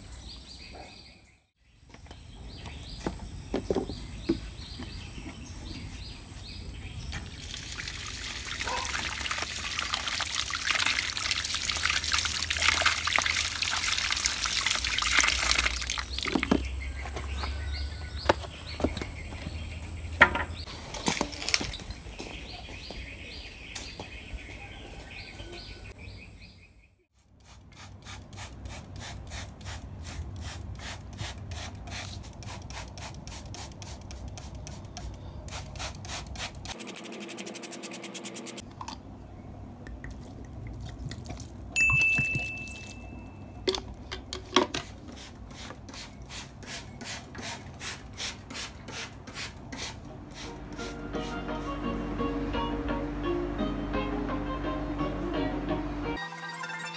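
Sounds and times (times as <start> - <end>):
water running from tap over hands: 7.3 - 16.2.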